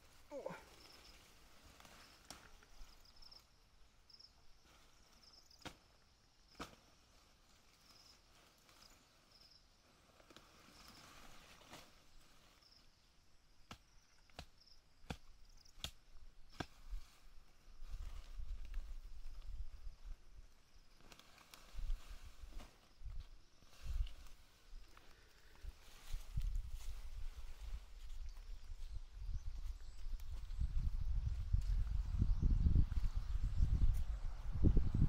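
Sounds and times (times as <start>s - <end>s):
high insect chirp: 0.4s - 15.8s
hand tool chopping grass: 13.7s - 16.8s.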